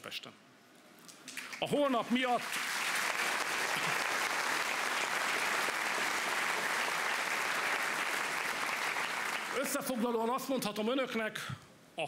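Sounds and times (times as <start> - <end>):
audience applauding: 1.3 - 10.0.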